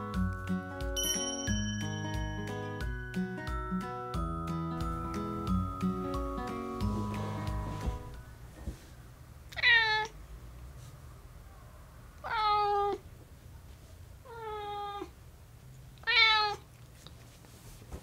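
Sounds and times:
cat meowing: 9.5 - 10.1, 12.2 - 13.0, 14.2 - 15.1, 16.0 - 16.6.

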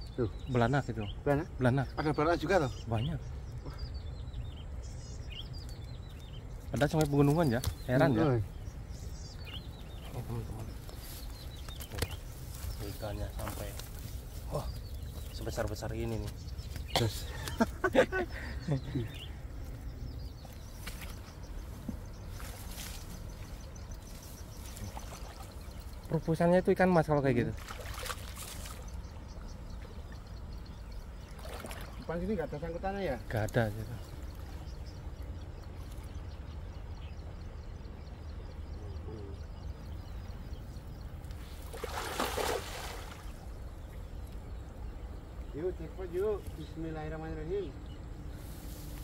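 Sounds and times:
net splashing onto water: 27.6 - 28.8, 31.3 - 32.0, 41.6 - 43.4.

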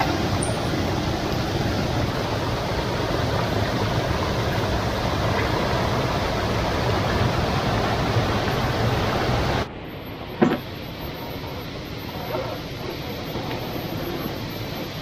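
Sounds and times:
stream and waterfall rushing: 0.0 - 9.7.

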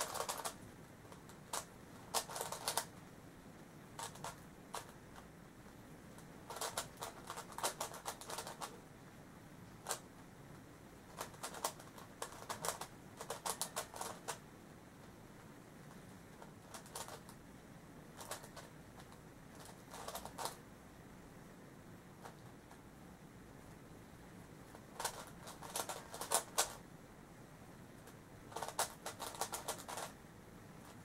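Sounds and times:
puzzle cube plastic clicks: 0.0 - 3.0, 4.0 - 5.3, 6.5 - 8.8, 9.8 - 10.0, 11.1 - 14.4, 15.9 - 17.4, 18.1 - 20.6, 24.7 - 26.8, 28.0 - 30.2.

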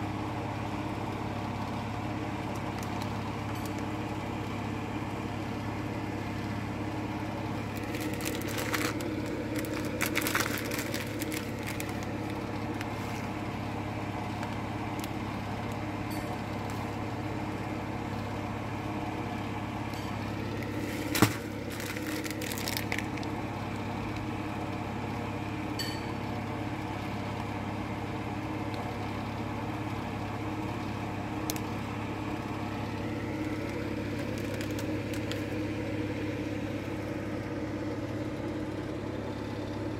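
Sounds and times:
steady machine hum: 0.0 - 39.9
plastic packaging crinkling: 2.5 - 3.9, 7.5 - 13.6, 20.3 - 23.5, 32.7 - 36.3.

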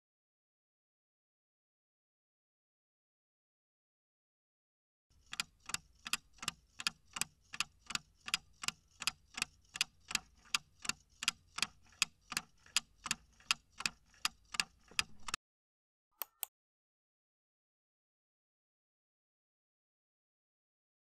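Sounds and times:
clock ticking: 5.2 - 15.4.

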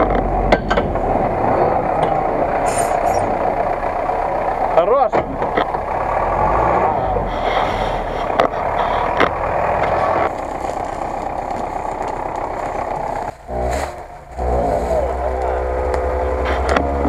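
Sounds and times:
sharp clattering knocks: 0.0 - 1.1
truck engine running under load: 0.0 - 17.0.

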